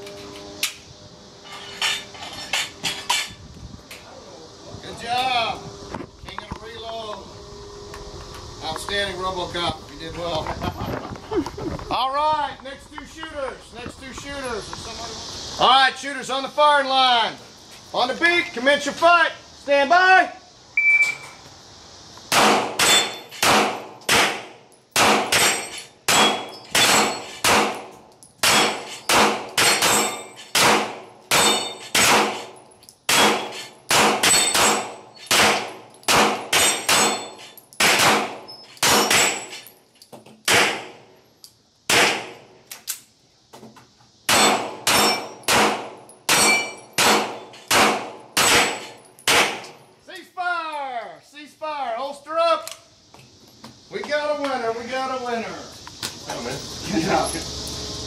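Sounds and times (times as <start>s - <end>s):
steel plates clanging: 1.4s - 3.4s, 31.3s - 32.5s, 46.3s - 47.7s
pistol shots echoing: 22.3s - 32.5s, 33.1s - 37.2s, 37.8s - 39.4s, 41.9s - 42.4s, 44.3s - 49.6s.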